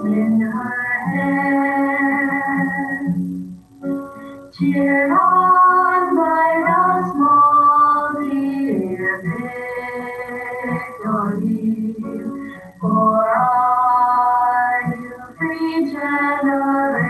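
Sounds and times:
women singing together: 0.0s - 3.3s, 4.6s - 17.0s.

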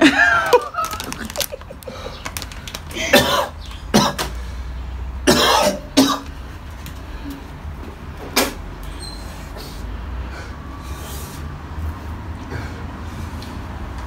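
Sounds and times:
man coughing and hacking: 3.0s - 4.3s, 5.2s - 6.3s.

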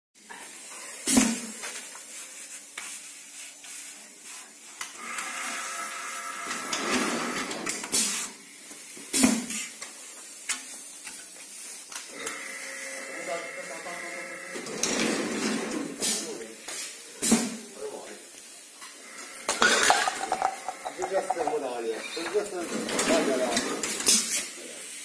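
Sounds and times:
metal plates clanking: 19.6s - 21.8s.

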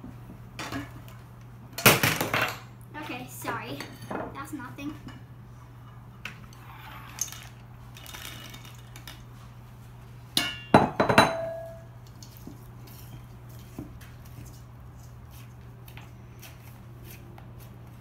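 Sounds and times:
sharp clinks of bowls: 10.4s - 11.9s.

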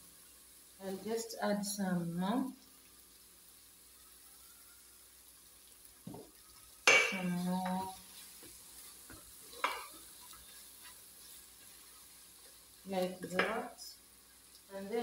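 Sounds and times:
faint sizzle: 0.0s - 15.0s
wooden spatula stirring food: 5.8s - 14.7s.

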